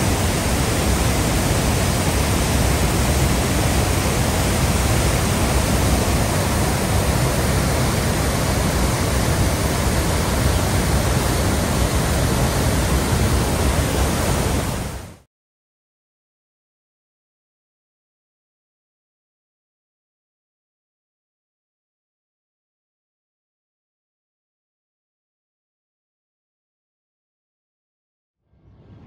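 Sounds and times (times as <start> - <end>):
water rushing over waterfall: 0.0 - 15.2.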